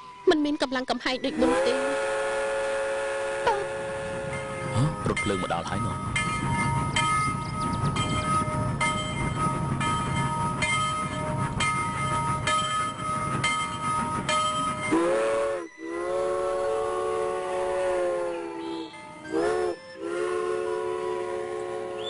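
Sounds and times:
train rumbling by: 0:01.2 - 0:22.0
train horn blasts: 0:01.3 - 0:05.3, 0:14.6 - 0:22.0
train wheel clack: 0:04.2 - 0:15.7.

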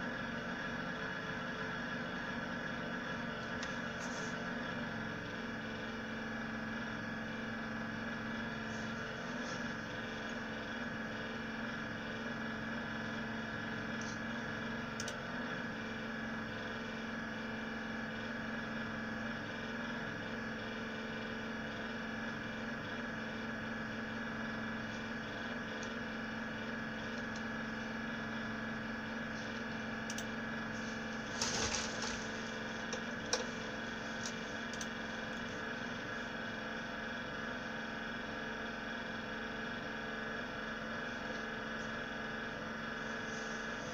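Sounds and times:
power supply fan drone: 0:00.0 - 0:43.9
short rustle: 0:30.8 - 0:32.9.

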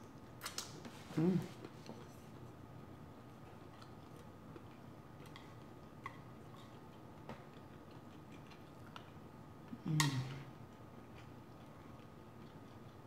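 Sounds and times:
chewing: 0:03.3 - 0:13.0.

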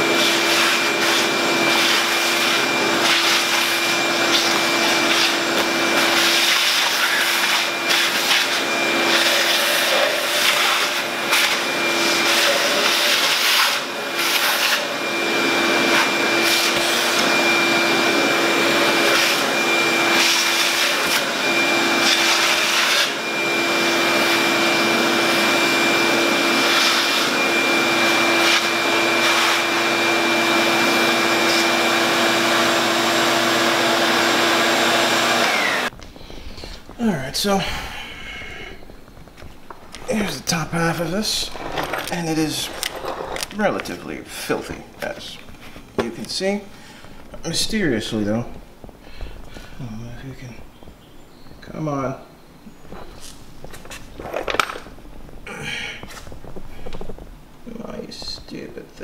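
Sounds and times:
shop vacuum humming and whistling: 0:00.0 - 0:36.0.

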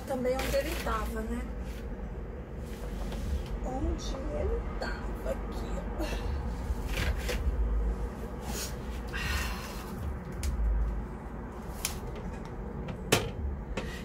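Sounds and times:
rustling and scraping of soil and paper: 0:00.0 - 0:01.9
low rumble: 0:00.0 - 0:14.0.

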